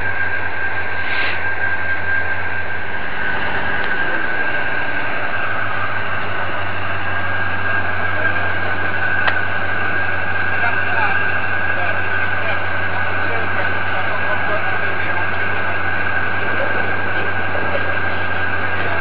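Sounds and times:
diesel engine low hum: 0:00.0 - 0:19.0
hydraulic high whine: 0:00.0 - 0:19.0.

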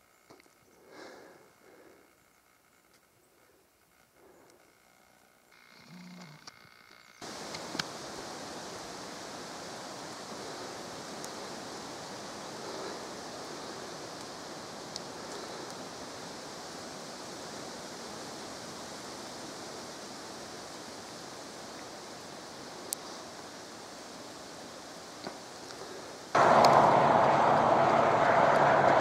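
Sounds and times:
steady hiss: 0:00.0 - 0:29.0
faint clicks: 0:00.2 - 0:00.6, 0:03.9 - 0:08.0, 0:13.3 - 0:16.0.

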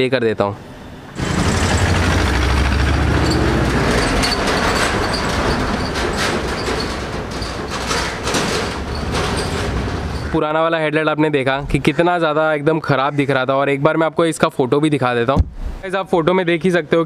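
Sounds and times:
low rumble of traffic: 0:00.0 - 0:14.0.

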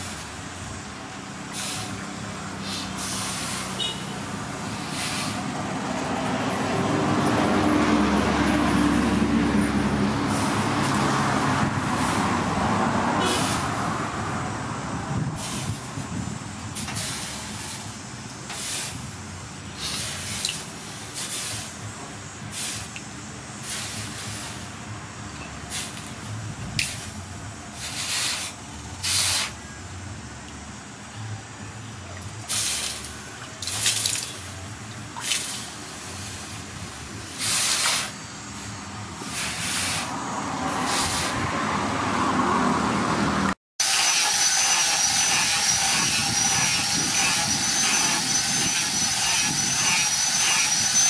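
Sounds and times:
water sizzling on hot metal: 0:32.5 - 0:36.8.

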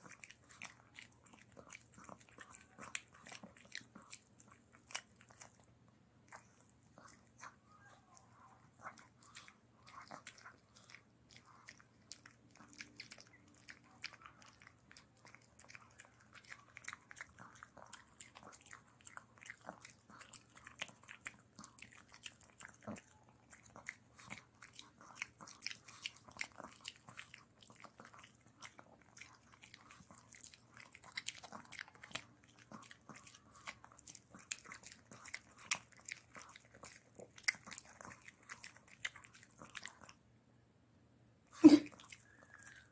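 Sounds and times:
dog crunching a chew stick: 0:08.8 - 0:40.2.

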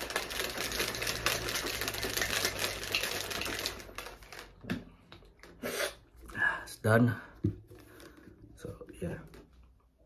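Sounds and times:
plastic shaker bottle shaken: 0:00.0 - 0:04.7.

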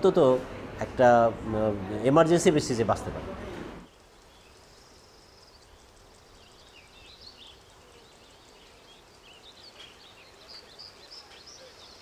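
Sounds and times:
small birds chirping: 0:03.8 - 0:12.0.

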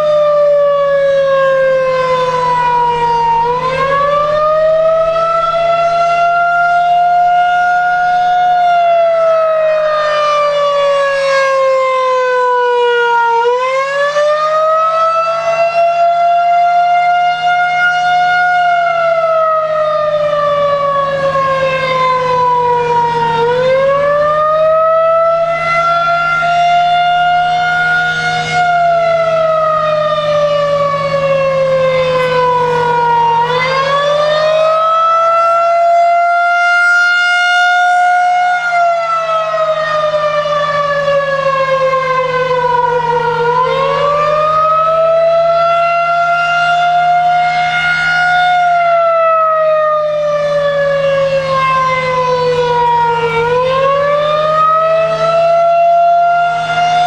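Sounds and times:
rising and falling siren wail: 0:00.0 - 0:57.0
steady low hum: 0:02.6 - 0:06.4.

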